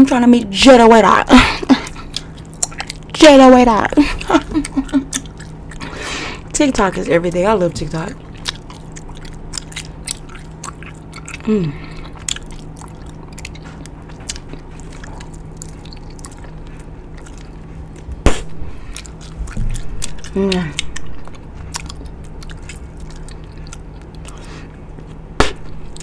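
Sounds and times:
gum chewing and smacking: 1.5 - 26.0
gum snap: 8.4 - 11.5, 18.3 - 26.0.

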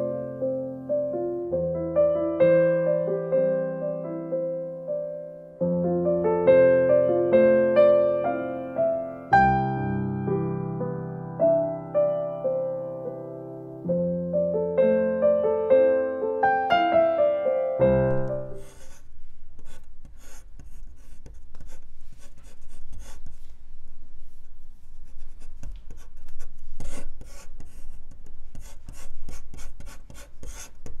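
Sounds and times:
piano music: 0.0 - 23.3
pen nib scratching paper: 18.5 - 23.6, 24.4 - 31.0.

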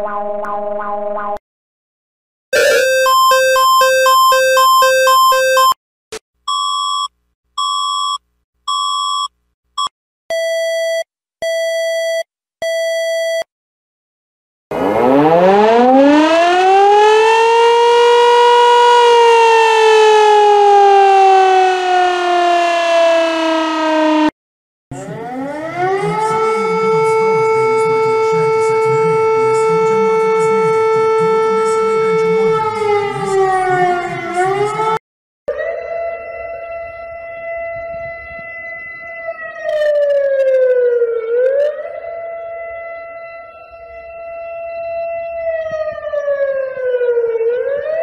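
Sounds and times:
longer lower beeps: 2.6 - 5.8, 6.5 - 13.5
short even beeps: 2.6 - 5.8, 6.5 - 13.5
siren winding up: 2.6 - 5.8, 14.7 - 22.3, 39.6 - 42.0
two-tone warble alert: 2.6 - 5.8.

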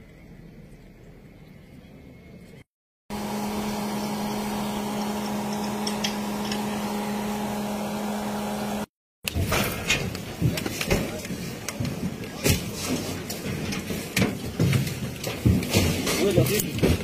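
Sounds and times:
truck engine idling: 3.1 - 8.9.

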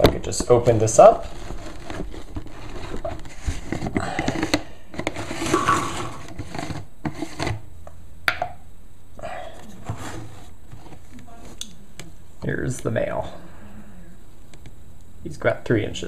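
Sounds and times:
plastic lid scraping: 0.0 - 7.7, 9.5 - 11.6.

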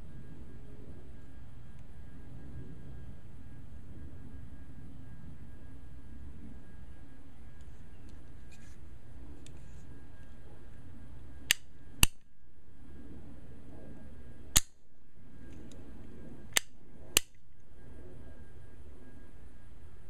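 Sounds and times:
revolver cocking and dry-firing clicks: 11.4 - 12.3, 14.5 - 15.8, 16.5 - 17.7.

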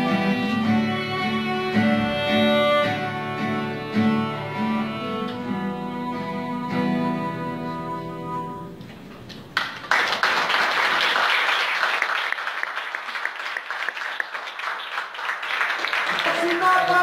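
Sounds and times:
violin: 0.0 - 8.9
acoustic guitar: 0.0 - 9.5
audience applause: 9.4 - 17.0.

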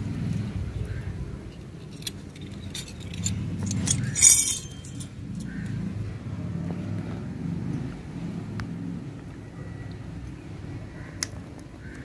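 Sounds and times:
low background rumble: 0.0 - 12.0
metallic clink ringing: 1.8 - 5.6.

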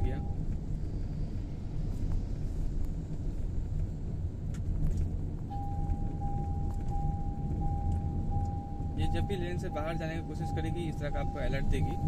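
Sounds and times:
cabin road rumble: 0.0 - 12.0
high beeping alert: 5.5 - 12.0.

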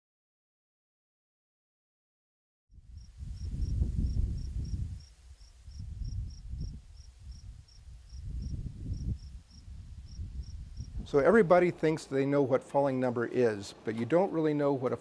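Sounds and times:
cricket chirping: 2.8 - 11.0
wind buffeting microphone: 2.8 - 11.9.

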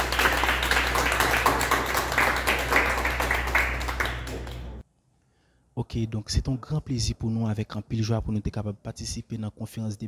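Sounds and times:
audience applauding: 0.0 - 4.8.

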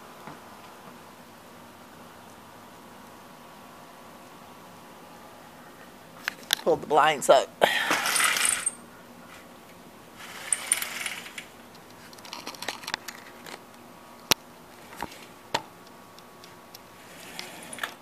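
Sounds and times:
window blind slats rattling: 10.2 - 13.4, 17.0 - 18.0.

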